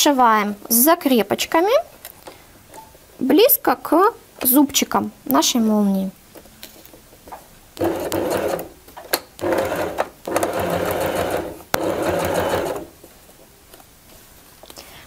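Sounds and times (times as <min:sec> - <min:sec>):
sewing machine stitching: 0:07.8 - 0:08.7, 0:09.4 - 0:12.9.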